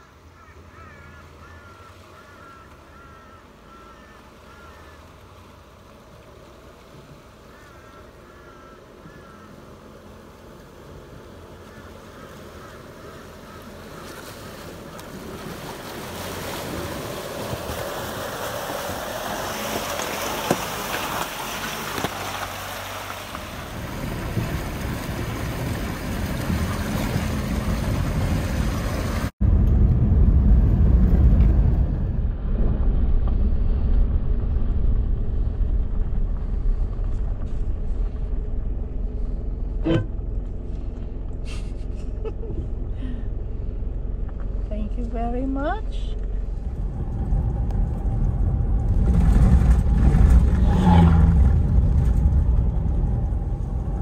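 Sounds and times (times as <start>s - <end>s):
rushing water: 0.0s - 29.4s
vehicle engine: 0.0s - 54.0s
low rumble: 23.2s - 54.0s.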